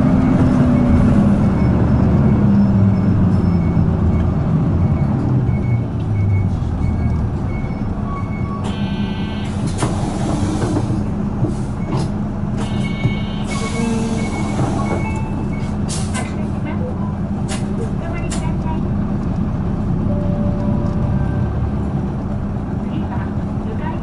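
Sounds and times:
bus diesel engine running: 0.0 - 24.0
short electronic beeps: 12.6 - 15.7.

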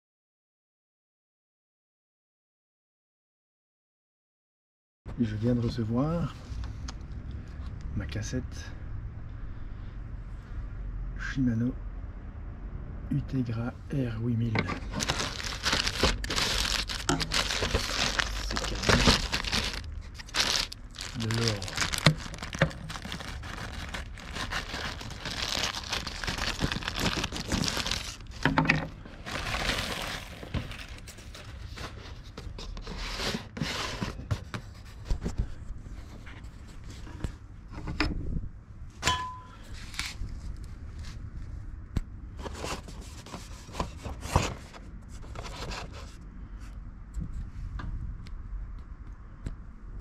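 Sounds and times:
plastic bag and bubble wrap crinkling: 14.8 - 32.3.

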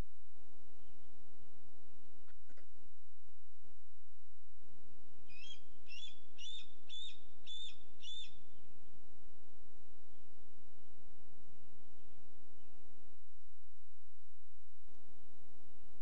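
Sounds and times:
low hum: 0.0 - 16.0
bird whistling call: 5.3 - 8.4.

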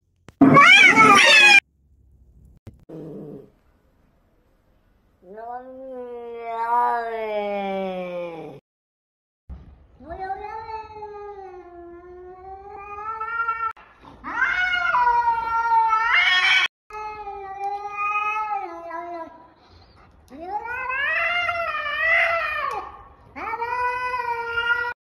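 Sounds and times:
cat meowing: 0.4 - 1.6.

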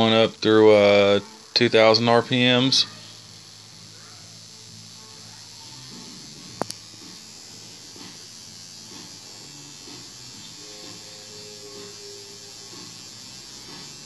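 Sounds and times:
steady electric buzz: 0.0 - 14.0
sharp clicks: 6.6 - 6.8.

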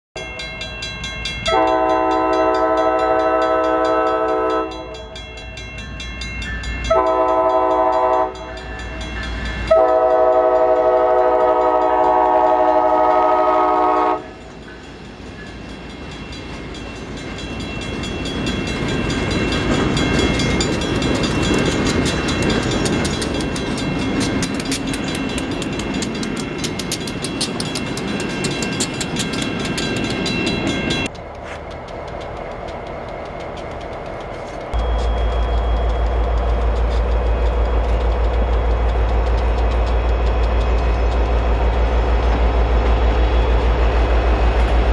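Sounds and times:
crossing bell ringing: 0.2 - 44.9
train wheels clattering on rails: 0.2 - 44.9
locomotive engine rumbling: 0.4 - 44.9
locomotive air horn blasts: 1.5 - 5.0, 6.9 - 8.5, 9.7 - 14.4.

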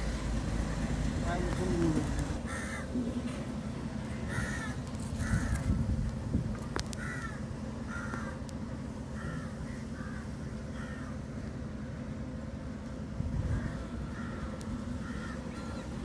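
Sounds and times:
steady low rumble: 0.0 - 16.0
crows cawing: 2.4 - 3.2, 4.2 - 5.8, 6.8 - 8.5, 9.1 - 11.3, 13.4 - 16.0.

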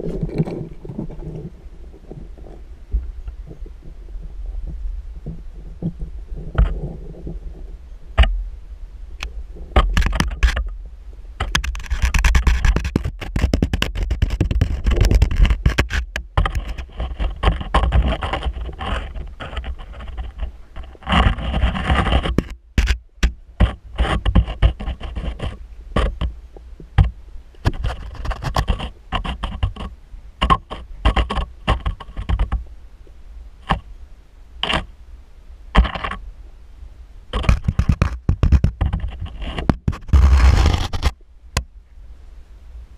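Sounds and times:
underwater knocks and scraping: 0.0 - 8.5, 9.2 - 33.9, 34.6 - 34.9, 35.8 - 36.2, 37.3 - 41.7
low rumble of water: 0.0 - 11.5.

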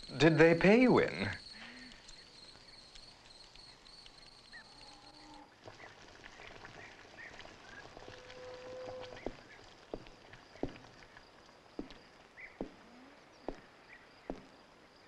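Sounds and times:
crickets chirring: 0.0 - 5.5, 8.4 - 15.0
faint animal calls: 4.1 - 9.7, 12.4 - 14.1.

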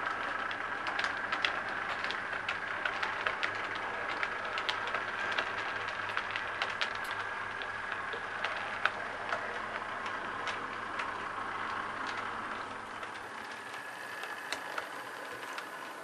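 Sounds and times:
model train motor whirring: 0.0 - 16.0
wheels clicking over rail joints: 0.0 - 16.0.

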